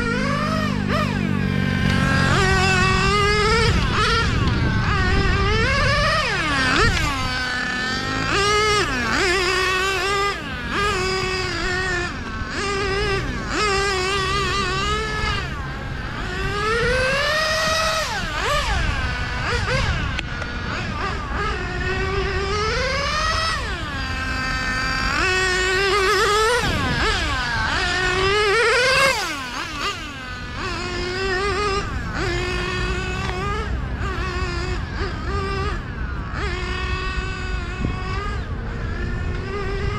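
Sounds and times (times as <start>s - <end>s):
rc car engine revving: 0.0s - 39.9s.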